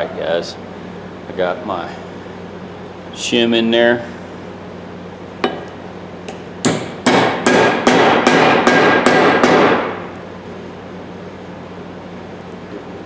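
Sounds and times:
hammer striking metal: 6.6s - 10.0s.

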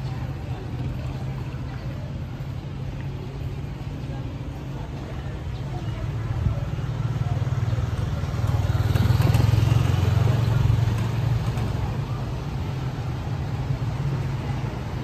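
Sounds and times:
motorcycle engine running: 7.2s - 12.2s.

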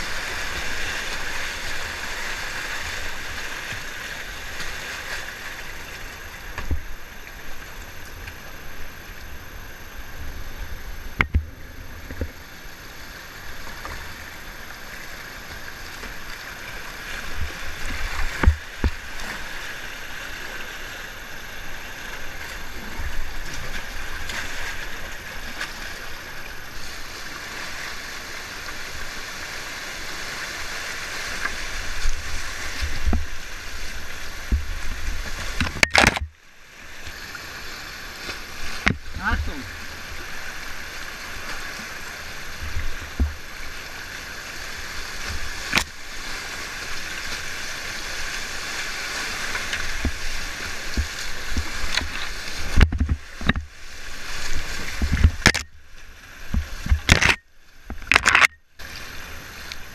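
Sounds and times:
river current rushing: 0.0s - 59.9s.

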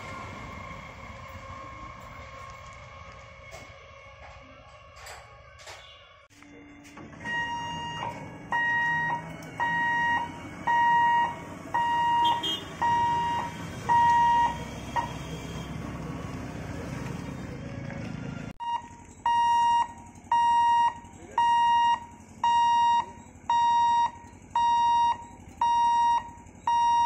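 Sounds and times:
level-crossing warning buzzer beeping: 5.7s - 15.7s, 18.6s - 27.0s
low steady rumble: 6.3s - 27.0s.

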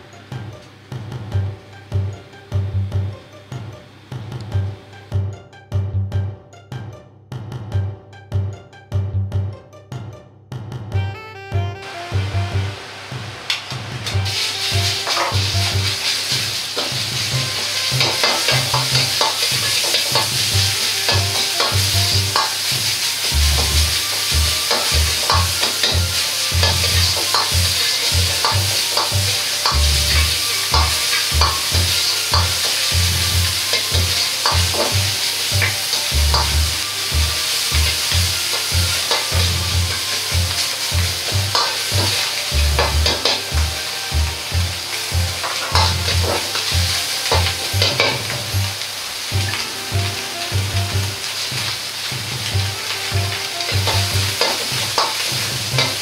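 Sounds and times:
meat sizzling in a wok: 11.9s - 56.0s
metal ladle scraping wok: 13.5s - 50.6s, 52.8s - 56.0s.

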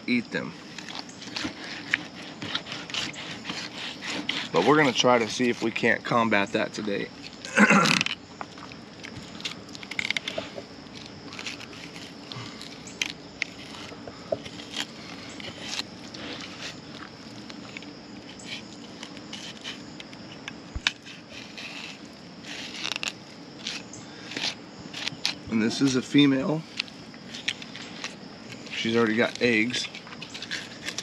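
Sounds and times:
knife cutting through fish bones: 0.8s - 5.7s.

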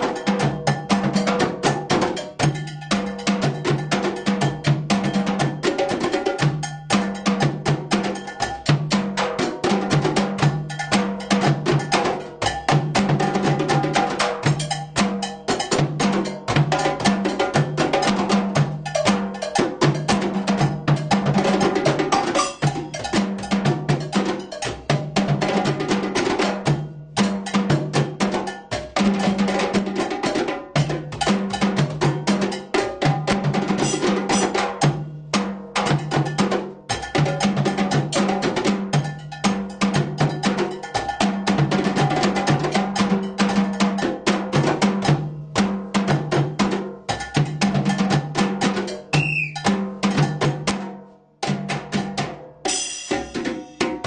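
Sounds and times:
bell pattern: 0.0s - 9.2s, 10.0s - 25.4s, 48.9s - 50.4s
drum ensemble playing: 0.0s - 54.0s.

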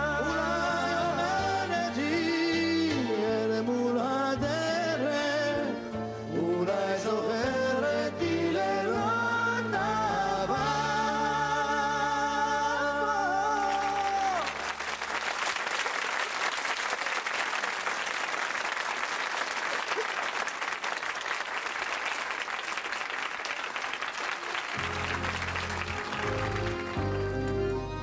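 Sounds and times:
accordions and mandolins playing: 0.0s - 4.0s, 4.6s - 13.5s, 24.4s - 28.0s
accordion: 0.0s - 13.8s, 24.2s - 28.0s
men singing: 0.0s - 14.4s
audience applauding: 13.5s - 28.0s.

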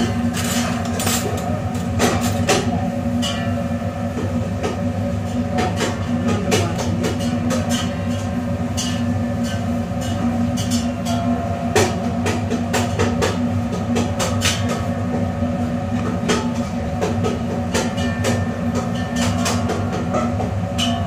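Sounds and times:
kitchen equipment humming: 0.0s - 21.0s.

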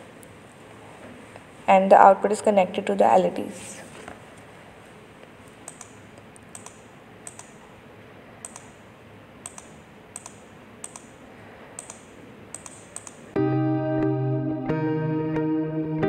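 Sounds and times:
mouse buttons clicking: 5.7s - 7.6s, 8.4s - 8.8s, 9.4s - 11.2s, 11.8s - 13.3s
loud guitar music: 13.4s - 16.0s.

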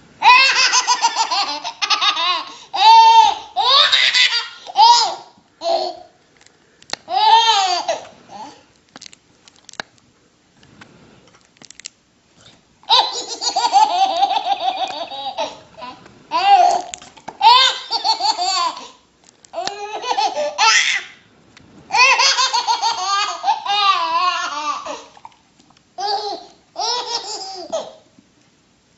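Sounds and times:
baby laughing: 0.2s - 6.1s, 7.1s - 8.6s, 12.9s - 19.0s, 19.6s - 21.1s, 21.9s - 25.1s, 26.0s - 28.0s.

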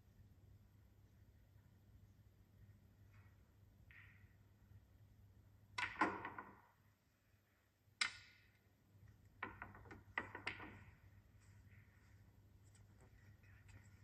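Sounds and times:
snooker balls clicking: 3.1s - 4.8s, 5.7s - 6.9s, 8.0s - 12.0s.

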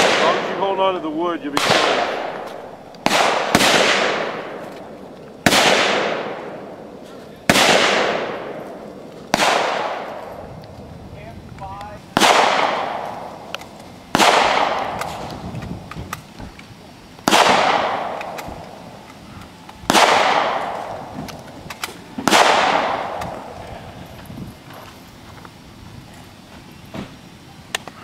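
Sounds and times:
rifle shots echoing: 0.0s - 10.4s, 12.1s - 15.5s, 17.2s - 19.1s, 19.8s - 23.8s.

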